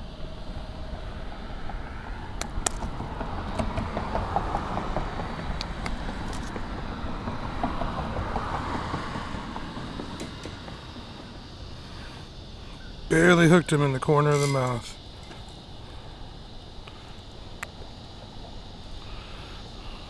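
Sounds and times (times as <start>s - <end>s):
steady low rumble: 0.0s - 14.0s
car passing on road: 0.0s - 20.0s.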